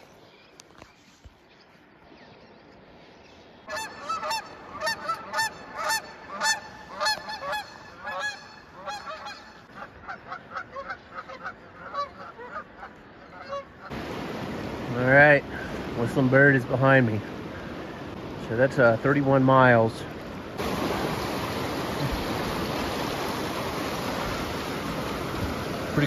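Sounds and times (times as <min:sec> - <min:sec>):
geese honking in flight: 0:03.7 - 0:14.0
river water rushing through rapid: 0:13.9 - 0:26.0.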